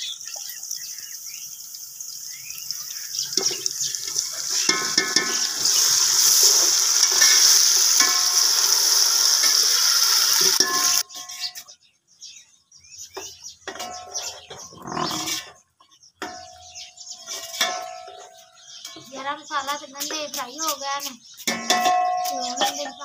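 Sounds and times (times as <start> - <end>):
onions sizzling in oil: 0.0 - 11.1
metal spoon scraping pot: 3.3 - 9.6, 10.2 - 11.7, 13.7 - 15.6, 17.2 - 19.1.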